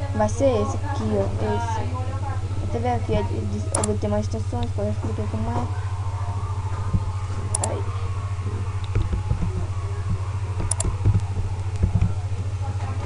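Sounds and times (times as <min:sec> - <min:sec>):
low electrical hum: 0:00.0 - 0:13.0
computer mouse clicks: 0:07.5 - 0:07.8, 0:08.8 - 0:09.6, 0:10.6 - 0:12.1.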